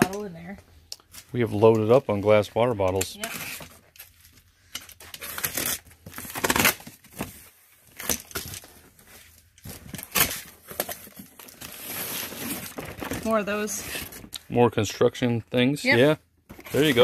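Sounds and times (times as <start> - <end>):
cardboard box being opened: 9.7 - 14.2, 16.5 - 17.0.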